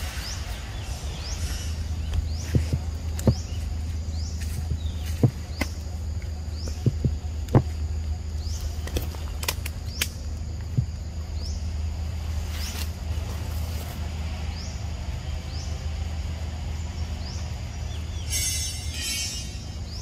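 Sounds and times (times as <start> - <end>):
steady low hum: 0.0 - 20.0
sharp clicks: 8.8 - 10.7.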